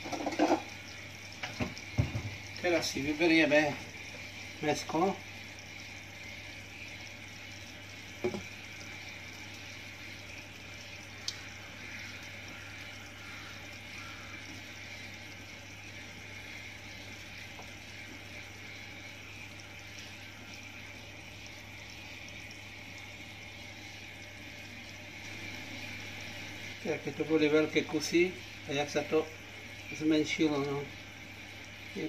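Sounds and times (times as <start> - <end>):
pot bubbling: 0.0 - 32.0
knock: 1.6 - 2.4, 8.2 - 8.4.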